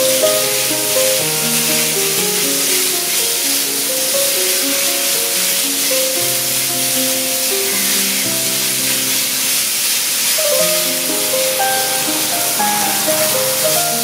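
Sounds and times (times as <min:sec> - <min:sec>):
meat sizzling in a pan: 0:00.0 - 0:14.0
background music with held notes: 0:09.8 - 0:14.0.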